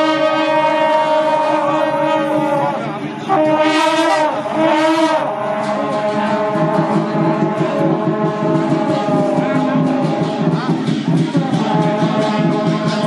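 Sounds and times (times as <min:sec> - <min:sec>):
wind instruments blaring: 0:00.0 - 0:13.0.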